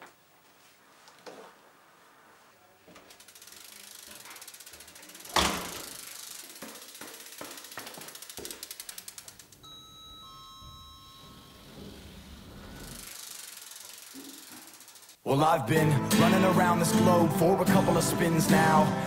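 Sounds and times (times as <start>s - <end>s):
bike freewheel hub clicking: 3.0s - 9.6s, 11.7s - 15.2s
lift chime two-note ding: 9.7s - 11.7s.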